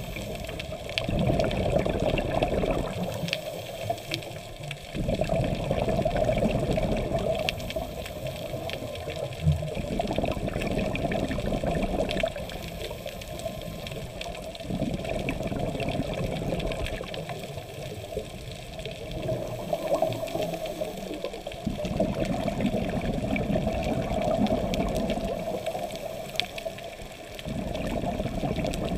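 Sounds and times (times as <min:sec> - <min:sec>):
diver exhaling bubbles: 0:00.0 - 0:03.6, 0:04.9 - 0:18.4, 0:19.0 - 0:26.8, 0:27.4 - 0:28.9
faint steady crackle: 0:00.0 - 0:28.9.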